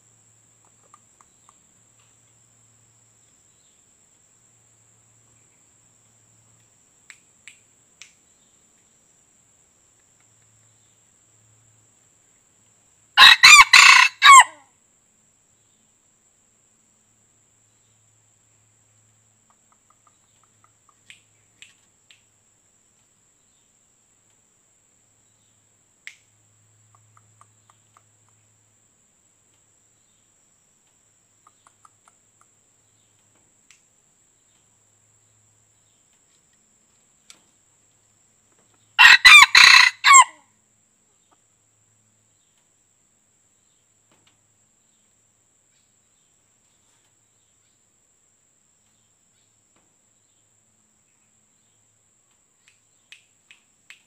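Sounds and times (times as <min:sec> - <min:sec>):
faint clicks and chirps: 0:00.5 - 0:02.5, 0:05.4 - 0:09.1, 0:09.8 - 0:11.0, 0:19.4 - 0:24.5, 0:25.5 - 0:28.6, 0:29.4 - 0:38.9, 0:42.4 - 0:42.8, 0:51.8 - 0:54.0
rooster crowing: 0:13.2 - 0:14.7, 0:39.0 - 0:40.5.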